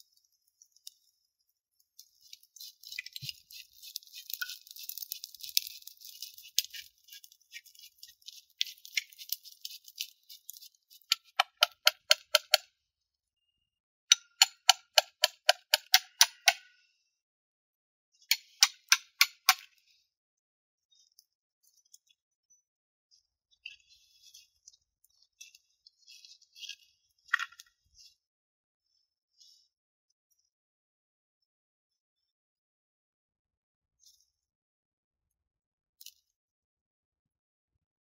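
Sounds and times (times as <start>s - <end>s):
brush scratching salt crust: 2.0s - 12.1s.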